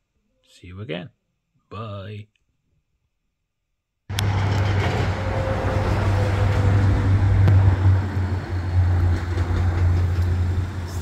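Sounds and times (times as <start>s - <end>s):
car engine running: 4.1s - 5.4s.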